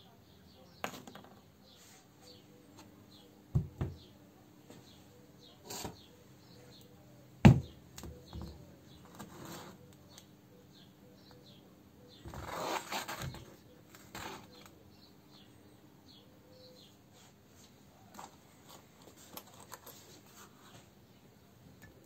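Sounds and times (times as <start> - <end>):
small birds chirping: 0.0 - 22.0.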